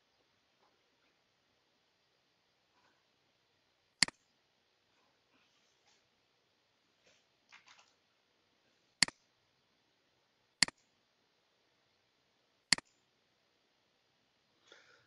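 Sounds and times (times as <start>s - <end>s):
computer mouse clicks: 4.0s - 4.3s, 10.6s - 10.9s, 12.7s - 13.0s.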